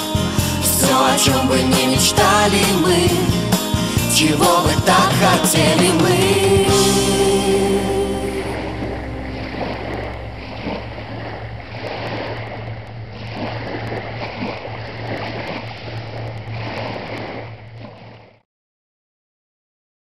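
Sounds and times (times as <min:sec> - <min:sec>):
low wind rumble: 0:02.4 - 0:18.0
small waves lapping at shore: 0:08.3 - 0:18.4.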